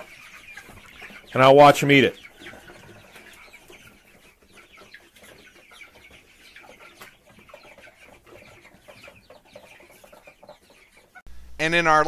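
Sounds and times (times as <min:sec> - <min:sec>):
chicks peeping: 0:00.0 - 0:12.0.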